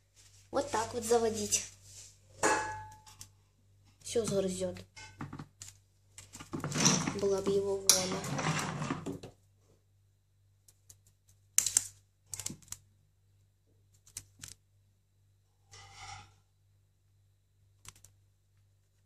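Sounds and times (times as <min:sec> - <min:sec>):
claws clicking on plastic: 0:10.7 - 0:12.8.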